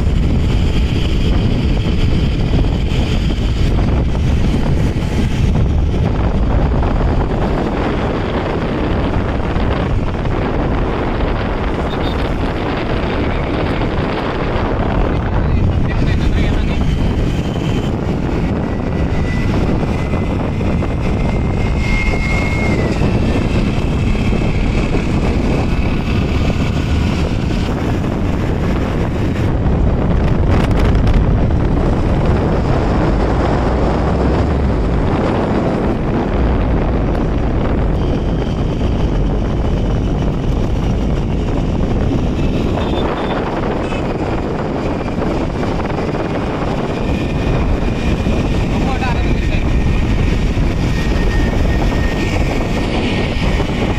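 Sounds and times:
vehicle road and engine noise: 0:00.0 - 0:53.9
wind rumbling on microphone: 0:00.0 - 0:53.9.

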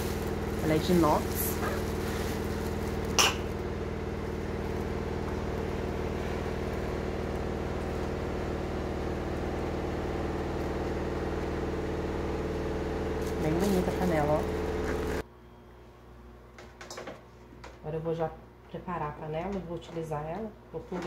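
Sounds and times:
plastic wrapping rustle: 0:00.0 - 0:06.9
steady machine hum: 0:00.0 - 0:16.8.

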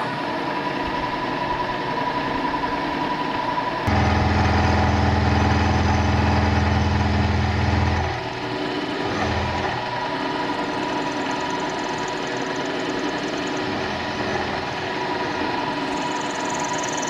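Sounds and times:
milling machine whine: 0:00.0 - 0:17.0
deep hum: 0:03.8 - 0:08.5.

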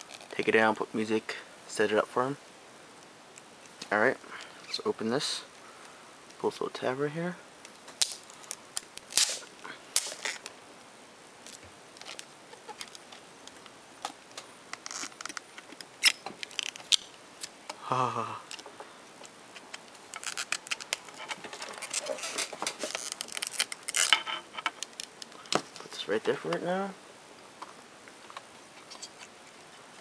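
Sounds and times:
plastic wrapping crinkling: 0:07.9 - 0:10.5, 0:11.4 - 0:17.5, 0:19.5 - 0:25.9.

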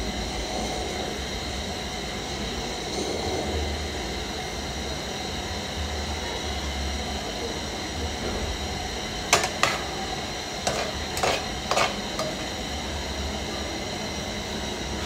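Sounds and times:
metal spoon scraping frying pan: 0:09.3 - 0:10.0, 0:10.6 - 0:12.6.

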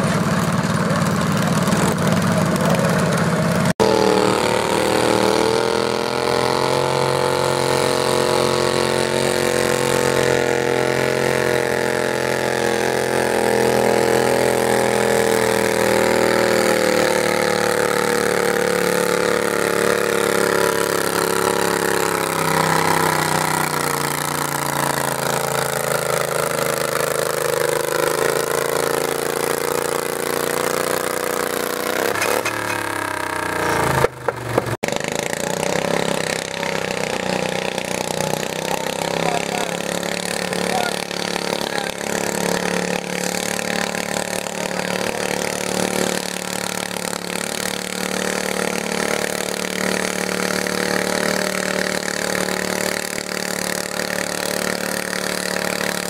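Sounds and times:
garden tractor engine running: 0:00.0 - 0:56.0.

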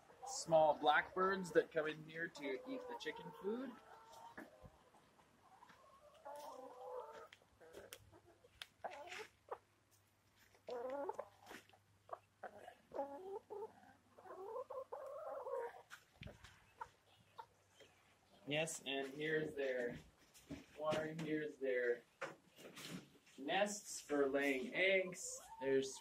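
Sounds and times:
hens clucking softly: 0:00.0 - 0:09.7, 0:10.4 - 0:18.5, 0:24.9 - 0:26.0.

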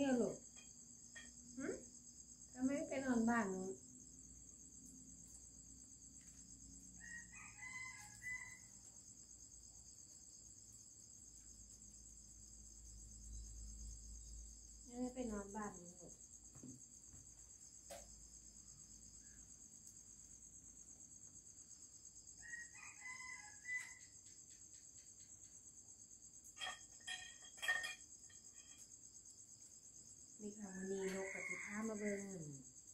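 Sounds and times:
crickets chirping: 0:00.0 - 0:32.9
rooster crowing: 0:07.0 - 0:08.9, 0:22.4 - 0:24.2, 0:30.8 - 0:32.5.

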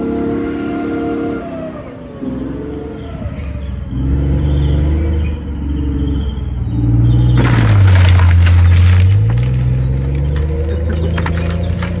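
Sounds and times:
branches snapping and splintering: 0:07.4 - 0:12.0.

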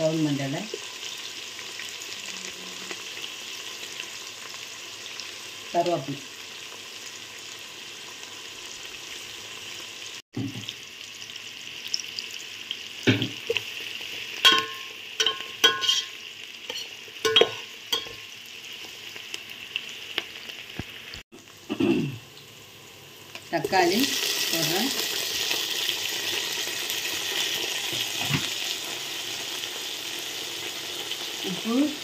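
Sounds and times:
onions sizzling in hot oil: 0:00.0 - 0:32.0
metal spatula scraping a pot: 0:14.5 - 0:18.2.

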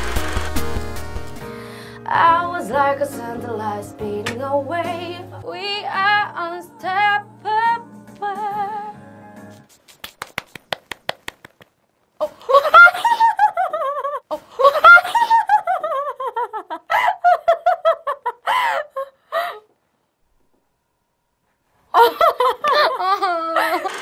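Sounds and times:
flat-palmed clapping: 0:09.7 - 0:11.8
woman laughing: 0:12.2 - 0:19.6, 0:21.9 - 0:24.0.

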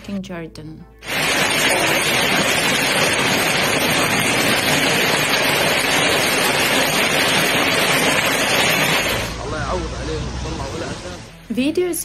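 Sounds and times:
hail and rain on pavement: 0:01.0 - 0:09.4.

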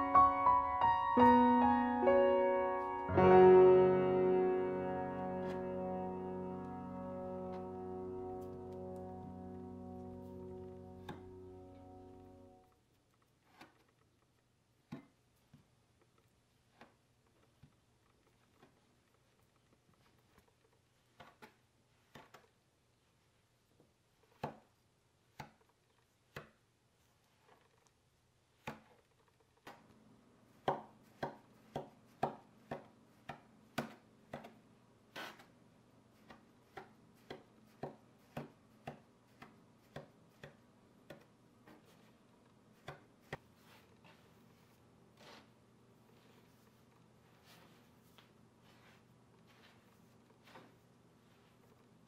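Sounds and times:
knife chopping on wooden board: 0:30.6 - 0:34.6, 0:36.2 - 0:41.9.

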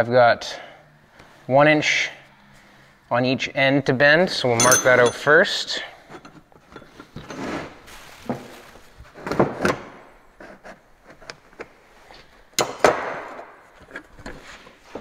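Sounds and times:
metal clinking on metal and wood: 0:04.5 - 0:07.4.

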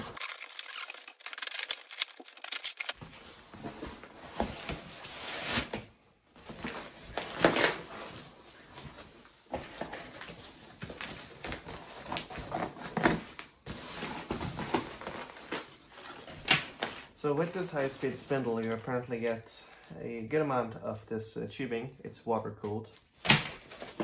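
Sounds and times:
cardboard flaps tearing: 0:00.0 - 0:03.0, 0:06.6 - 0:08.1
scissors cutting tape and cardboard: 0:00.0 - 0:03.0
foam packing pieces rustling: 0:00.0 - 0:19.4, 0:23.4 - 0:24.0.

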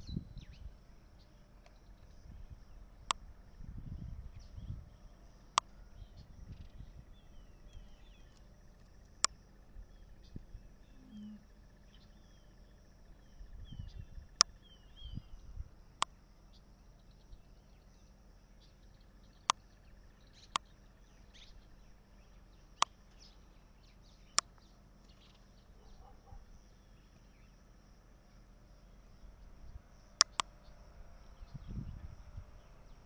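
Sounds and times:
faint bird chirps: 0:00.0 - 0:03.1, 0:03.8 - 0:33.0
sharp clicks: 0:30.2 - 0:30.5.

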